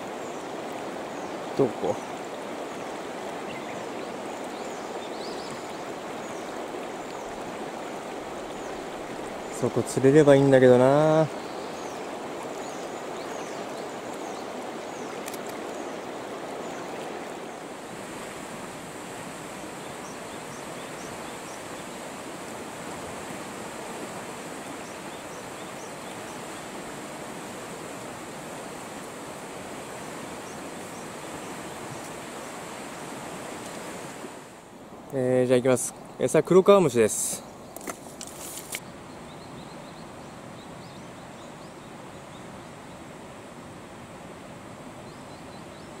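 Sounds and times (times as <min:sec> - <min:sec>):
river water running: 0:00.0 - 0:46.0.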